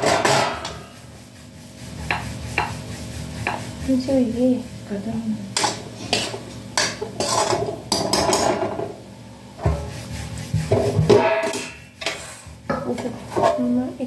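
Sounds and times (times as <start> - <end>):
metal pan clanking on grate: 0.0 - 0.8, 5.6 - 8.8, 11.0 - 13.8.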